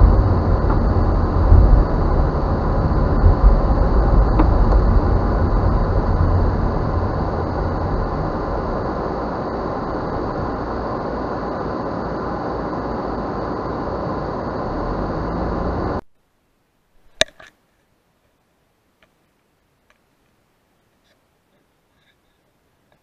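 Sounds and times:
car road and engine rumble: 0:00.0 - 0:17.2.

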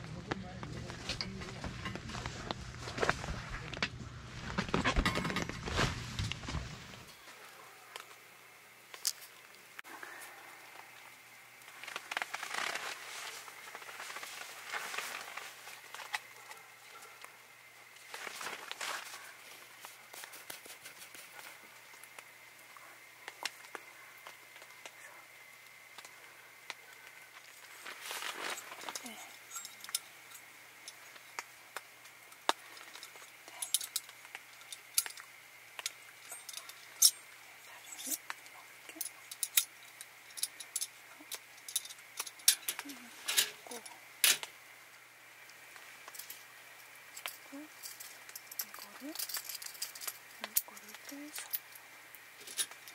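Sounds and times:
rustling of objects being handled: 0:00.0 - 0:08.2, 0:08.9 - 0:52.9
rain on a tent: 0:10.6 - 0:16.2, 0:18.0 - 0:21.2, 0:26.0 - 0:29.2
light metal clicks and clinks: 0:32.3 - 0:44.5, 0:47.2 - 0:51.8.

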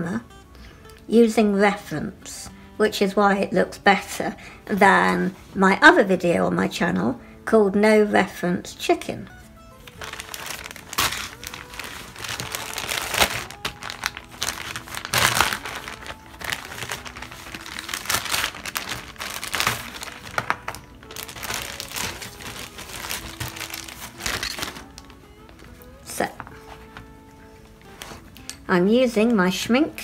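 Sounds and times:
plastic bag crinkling: 0:09.8 - 0:25.6.

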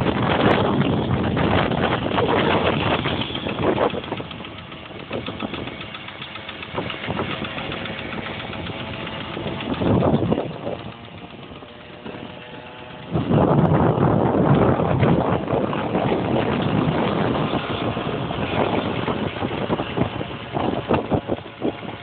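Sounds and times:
small motorcycle engine running: 0:00.0 - 0:22.0
wind rushing over microphone: 0:00.0 - 0:22.0.

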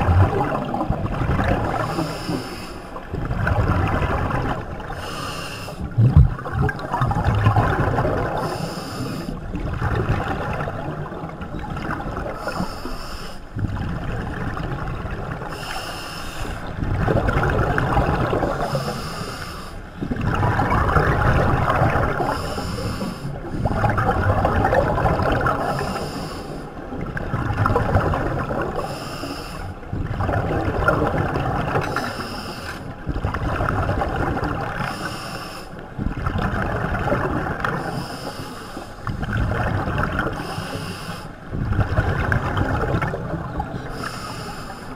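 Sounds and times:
exhaled air bubbling: 0:00.0 - 0:44.9
regulator inhalation hiss: 0:05.0 - 0:05.8.

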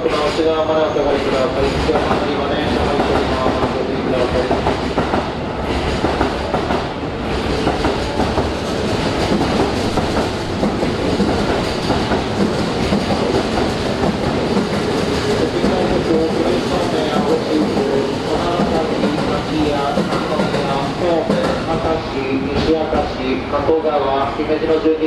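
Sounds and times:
electric train wheels rumbling on rail: 0:00.0 - 0:25.0.

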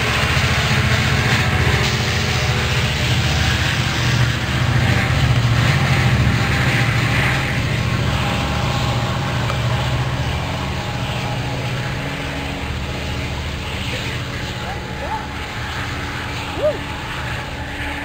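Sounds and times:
diesel locomotive engine drone: 0:00.0 - 0:18.0.

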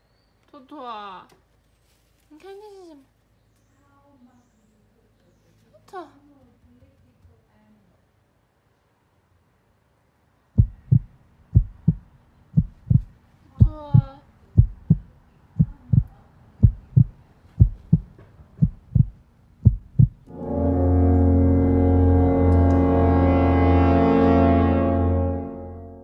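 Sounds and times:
heartbeat thumps: 0:10.6 - 0:20.3.

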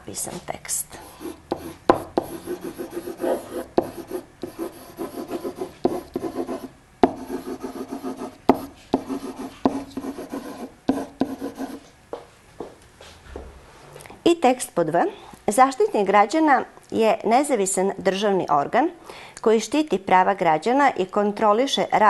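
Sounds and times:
pen tapping on board: 0:01.5 - 0:03.2, 0:03.8 - 0:11.8.

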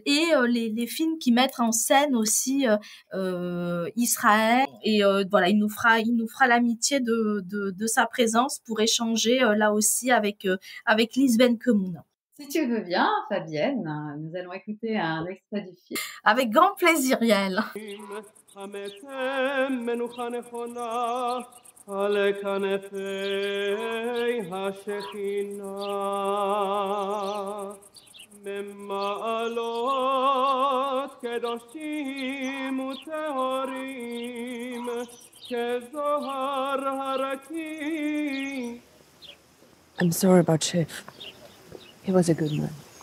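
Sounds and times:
person singing with vibrato: 0:00.0 - 0:00.4, 0:16.0 - 0:38.9.

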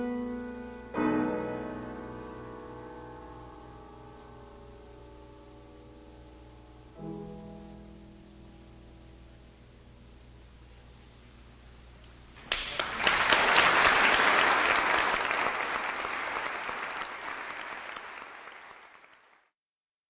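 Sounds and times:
piano chord: 0:00.0 - 0:10.2
audience applause: 0:12.4 - 0:19.5.

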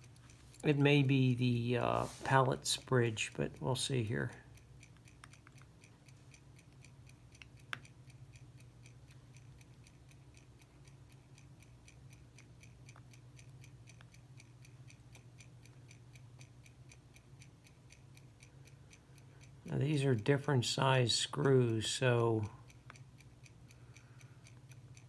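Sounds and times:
mechanical watch ticking: 0:00.0 - 0:25.0.

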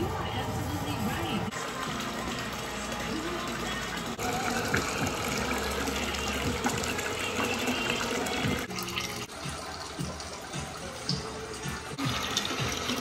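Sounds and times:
water running into bathtub: 0:01.1 - 0:13.0.

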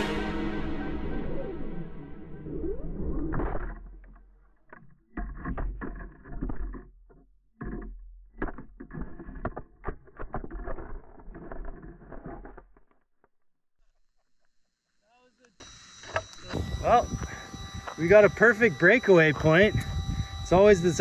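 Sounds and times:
low microphone rumble: 0:00.0 - 0:03.3, 0:16.6 - 0:21.0
electric motor whine: 0:00.0 - 0:04.1, 0:15.6 - 0:21.0.

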